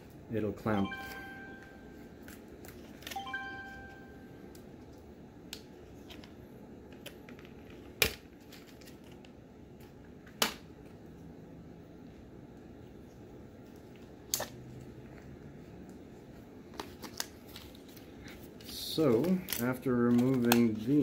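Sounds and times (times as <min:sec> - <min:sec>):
packaging being handled: 0:16.7 - 0:21.0.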